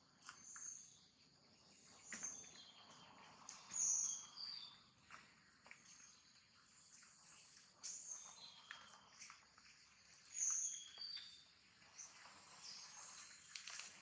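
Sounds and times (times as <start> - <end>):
faint insect hiss: 0.4 - 4.8, 5.8 - 14.0.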